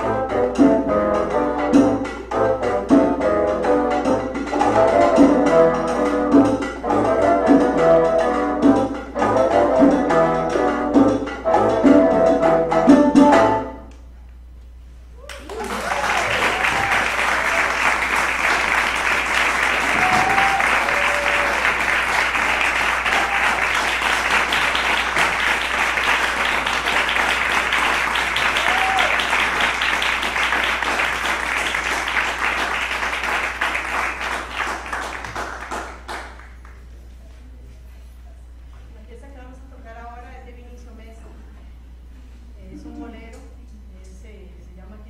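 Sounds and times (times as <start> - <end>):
audience applauding: 15.3 - 36.9
crowd calls: 15.4 - 32.2.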